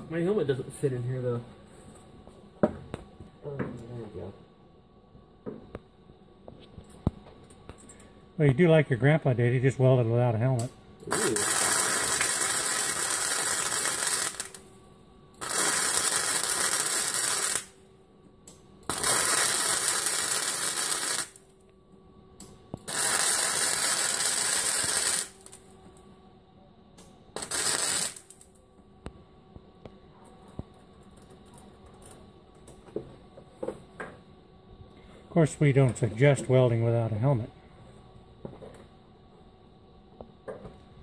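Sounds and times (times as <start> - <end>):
welder arc crackling and hissing: 0.0 - 3.0, 7.7 - 17.8, 18.5 - 21.7, 22.4 - 26.0, 27.0 - 29.2.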